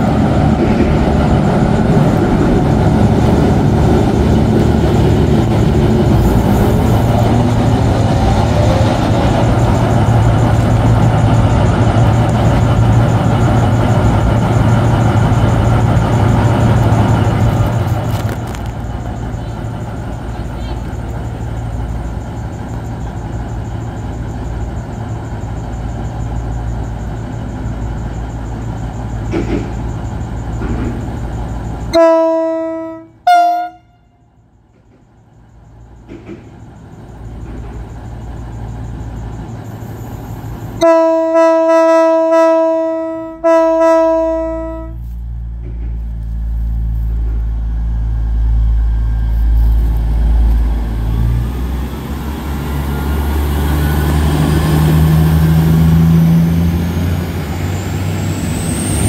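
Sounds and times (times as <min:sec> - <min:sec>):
diesel train engine running: 0:00.0 - 0:59.0
train horn: 0:31.9 - 0:34.4, 0:40.8 - 0:45.1.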